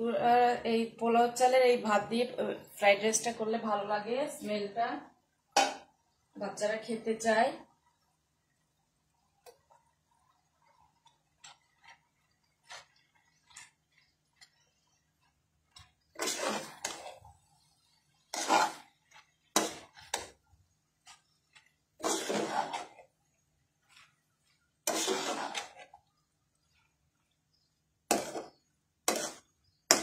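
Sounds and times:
spatula scraping a metal pan: 10.4s - 20.4s, 21.0s - 23.1s, 23.8s - 26.0s, 26.6s - 30.0s.

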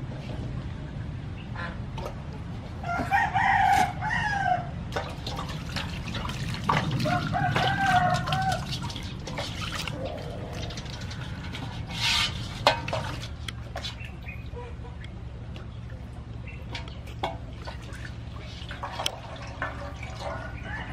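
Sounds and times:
water sloshing and splashing: 1.9s - 4.0s, 4.8s - 20.9s
rooster crowing: 2.8s - 4.7s, 7.0s - 8.8s, 20.2s - 20.9s.

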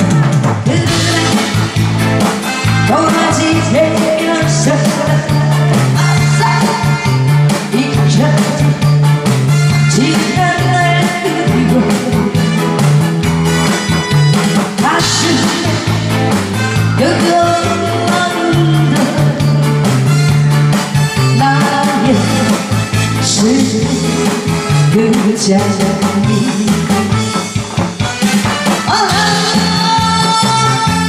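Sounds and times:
backing track with bass and drums: 0.0s - 31.0s
woman singing through microphone: 0.6s - 1.7s, 2.8s - 8.9s, 9.9s - 12.4s, 14.8s - 16.3s, 17.0s - 19.7s, 21.3s - 27.0s, 28.8s - 31.0s.

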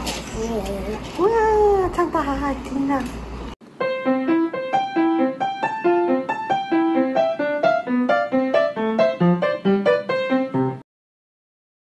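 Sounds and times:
quick piano tune: 3.8s - 10.8s.

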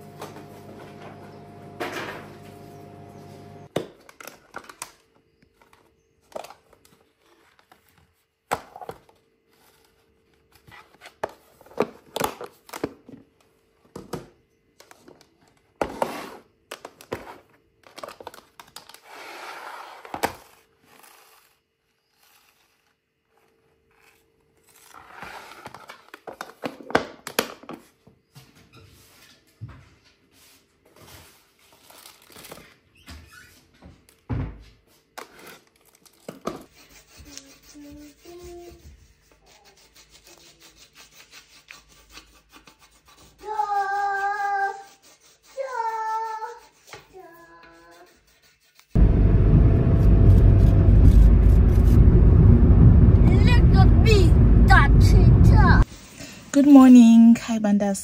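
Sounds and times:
steady hum: 0.0s - 3.7s, 49.0s - 55.8s.

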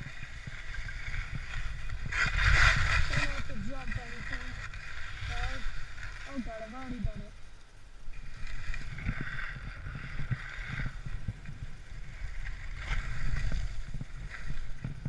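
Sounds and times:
skis scraping icy snow: 0.0s - 7.1s, 8.1s - 15.0s
wind rumbling on microphone: 0.0s - 15.0s.

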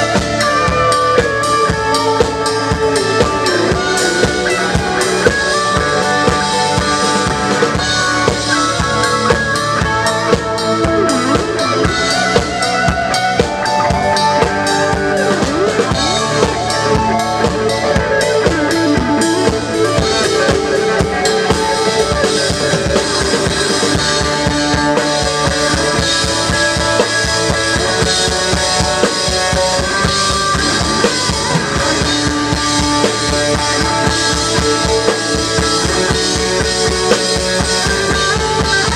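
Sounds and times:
drum kit beating: 0.0s - 38.9s
electric guitar bending notes: 0.0s - 38.9s.

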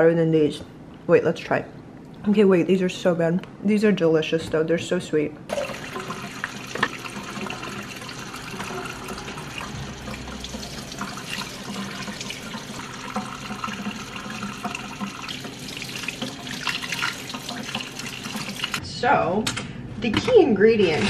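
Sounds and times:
faucet water splashing on berries: 5.5s - 18.8s.

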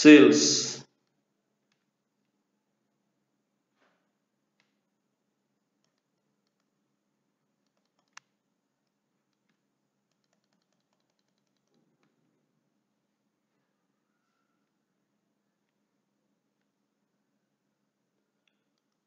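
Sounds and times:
stylus tapping on screen: 8.9s - 12.1s.

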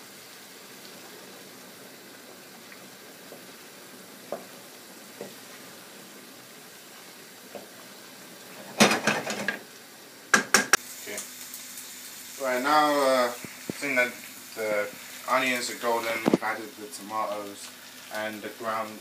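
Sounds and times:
sauce sizzling in a frying pan: 0.0s - 19.0s
loud knocks and clatter: 8.8s - 9.6s
spatula knocking on a pan: 10.3s - 10.8s.

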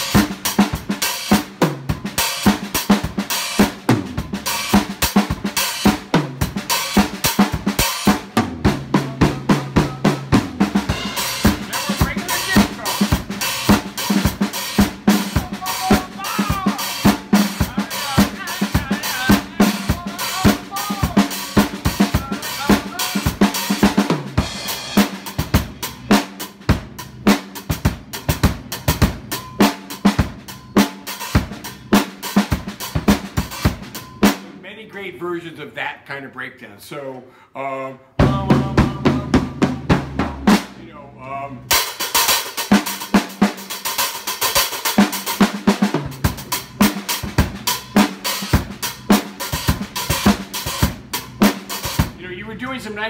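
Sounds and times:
drum kit groove: 0.0s - 35.1s, 38.2s - 53.0s
tom fills: 1.7s - 26.1s, 37.0s - 41.8s.

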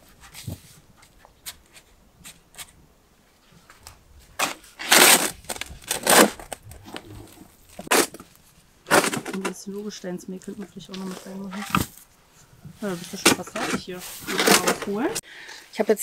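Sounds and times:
spade scraping soil: 4.4s - 9.6s, 12.8s - 15.2s.

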